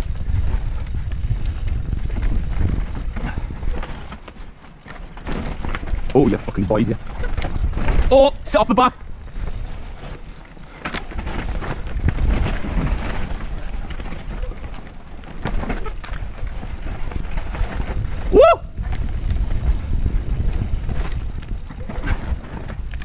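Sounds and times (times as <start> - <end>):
bike frame and chain rattling: 0.0 - 23.0
bike tyres rumbling over dirt: 0.0 - 23.0
wind buffeting microphone: 0.0 - 23.0.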